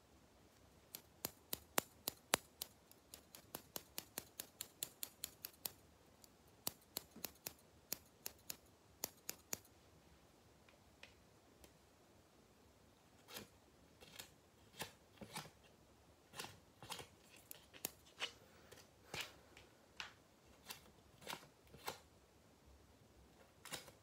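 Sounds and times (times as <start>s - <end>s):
scissors snipping: 0.9s - 9.7s, 16.4s - 18.4s.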